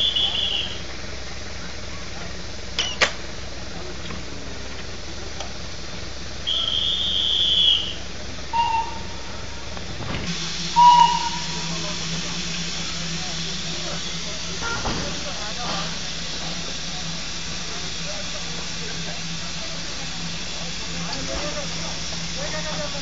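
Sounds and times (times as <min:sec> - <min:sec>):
high whistle-like calls: 0:00.0 - 0:00.8, 0:06.4 - 0:09.7, 0:10.7 - 0:11.9
steam locomotive hissing: 0:00.0 - 0:23.0.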